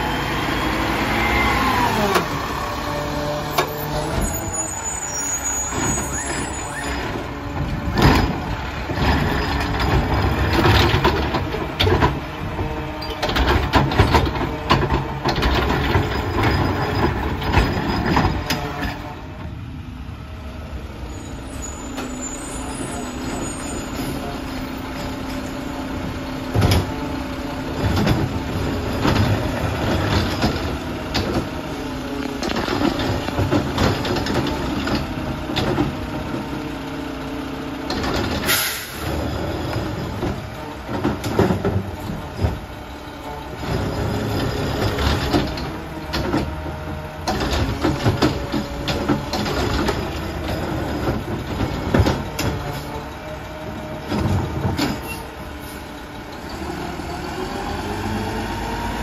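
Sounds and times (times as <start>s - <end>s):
garbage truck engine running: 0.0s - 59.0s
air brake hisses: 38.5s - 39.1s.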